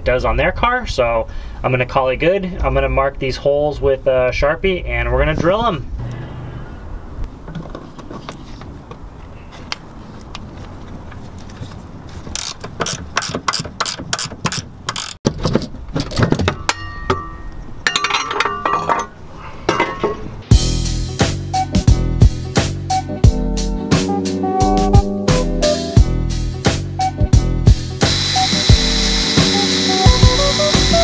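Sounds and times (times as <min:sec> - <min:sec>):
hand ratchet clicking: 0:12.4 - 0:15.2.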